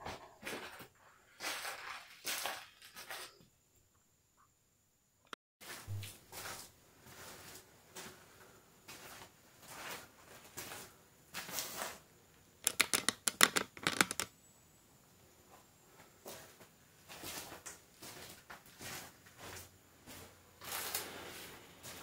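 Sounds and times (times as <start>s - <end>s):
sharp clicks and taps: 12.6s - 14.3s.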